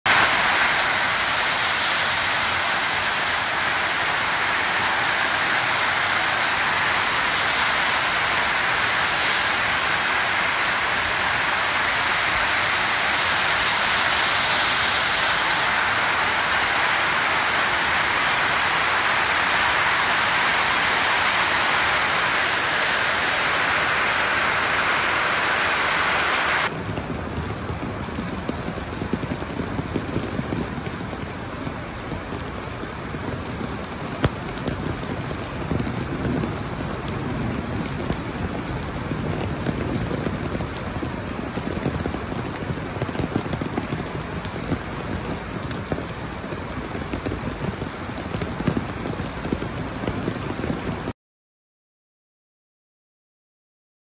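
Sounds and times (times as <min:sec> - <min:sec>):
rain falling on floodwater: 0:00.1 - 0:25.4, 0:26.0 - 0:51.1
hail and rain pelting metal: 0:26.7 - 0:51.1.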